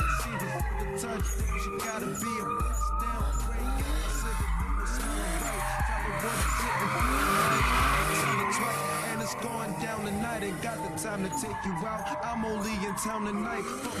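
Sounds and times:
car engine revving: 0.0 - 14.0
hip-hop music with heavy bass: 0.0 - 14.0
tyres squealing: 0.0 - 14.0.

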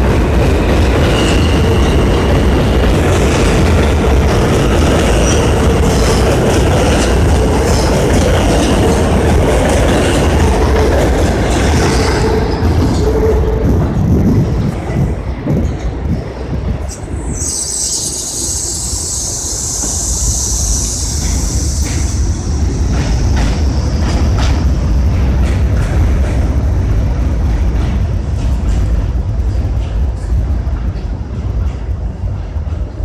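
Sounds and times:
train motors and wheels rumbling: 0.0 - 33.0
high-pitched hiss: 16.9 - 23.0.

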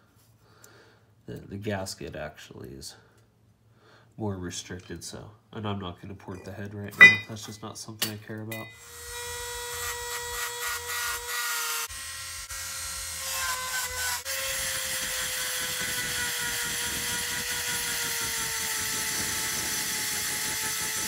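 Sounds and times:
rotary tool grinding metal: 8.6 - 21.0.

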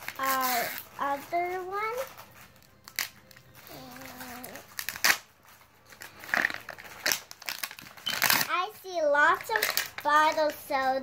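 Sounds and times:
plastic wrapper crackling: 0.0 - 10.9
sharp plastic cracks: 2.8 - 3.4, 4.5 - 5.4, 6.1 - 8.6, 9.3 - 10.6.

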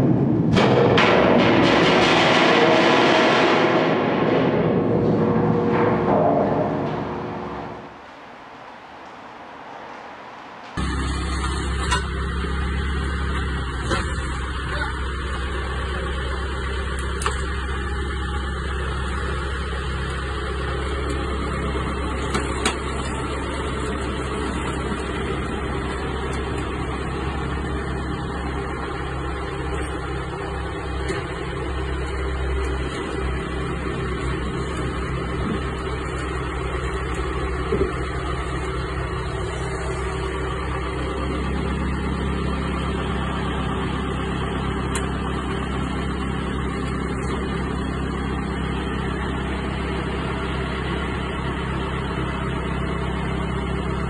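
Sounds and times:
sharp knocks: 0.0 - 8.0
tractor diesel engine idling: 10.8 - 54.0.

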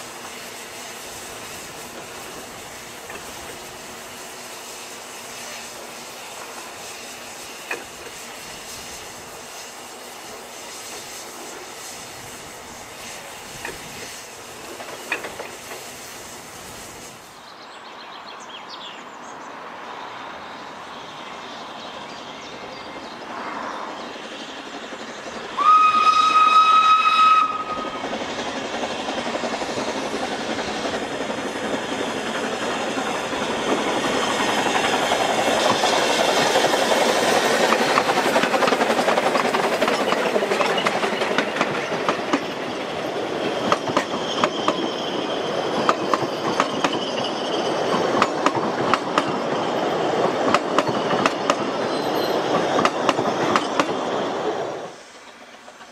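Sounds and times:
steam locomotive working: 0.0 - 17.6, 19.6 - 55.9
wheels clacking over rail joints: 7.6 - 8.1, 14.6 - 15.9, 27.2 - 55.9
steam whistle: 25.6 - 28.0.

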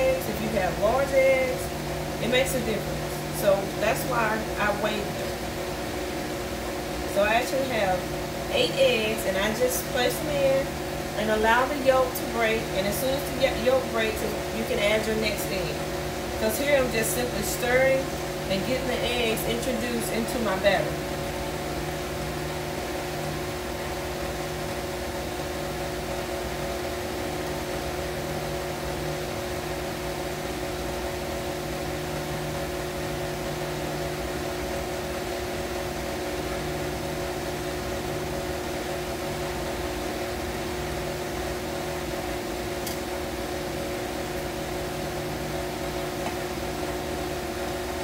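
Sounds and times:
stand mixer motor hum: 20.6 - 48.0.

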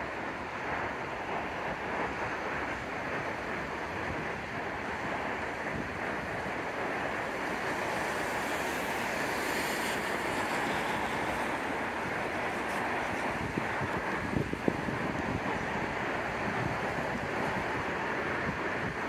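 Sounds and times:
distant electric train: 0.0 - 19.0
wind rushing: 0.8 - 19.0.

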